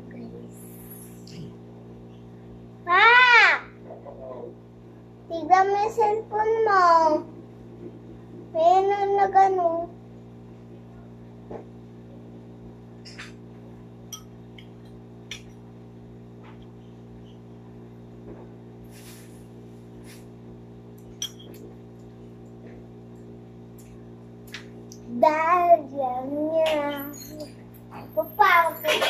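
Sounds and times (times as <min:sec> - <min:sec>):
steady low hum: 0:00.0 - 0:29.0
child's voice: 0:02.8 - 0:03.8, 0:05.3 - 0:07.3, 0:08.5 - 0:10.0, 0:25.1 - 0:29.0
spoon clinking on ceramic bowl: 0:21.2 - 0:21.6.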